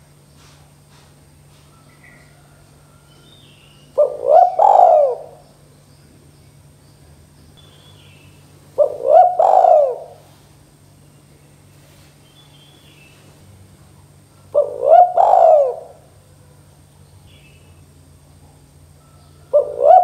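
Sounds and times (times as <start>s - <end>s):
dove cooing: 3.8s - 5.5s, 8.7s - 10.4s, 14.1s - 16.9s, 18.5s - 20.0s.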